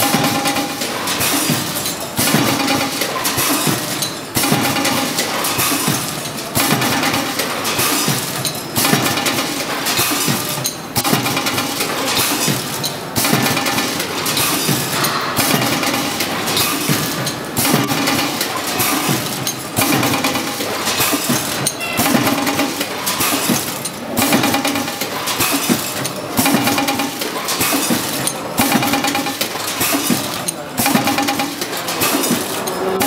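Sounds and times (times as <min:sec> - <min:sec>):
packing machine running: 0:00.0 - 0:33.0.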